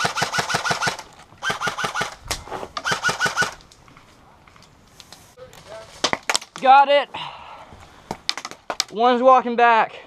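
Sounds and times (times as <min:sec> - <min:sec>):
airsoft rifle bursts: 0:00.0 - 0:02.2, 0:02.8 - 0:03.6.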